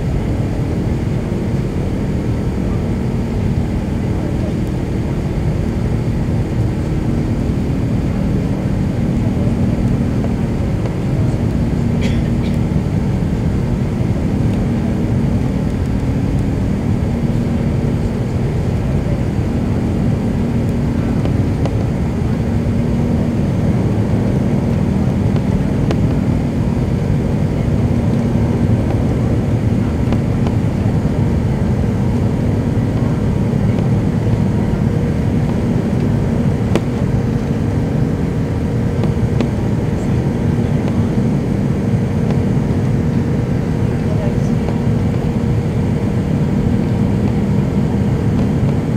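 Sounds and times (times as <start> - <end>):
jet engine noise in cabin: 0.0 - 48.9.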